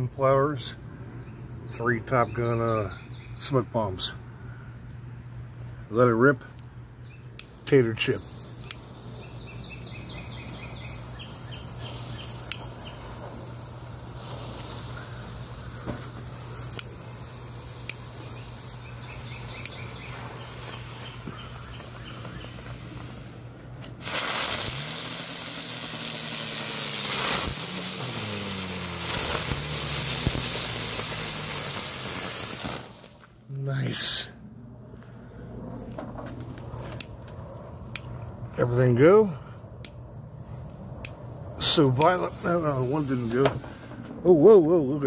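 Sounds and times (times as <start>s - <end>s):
fuses hissing with crackles: 7.3s - 34.2s, 35.8s - 45.0s
fireworks loud hissing: 7.5s - 33.4s, 41.5s - 44.2s
wavering whines: 18.2s - 38.3s.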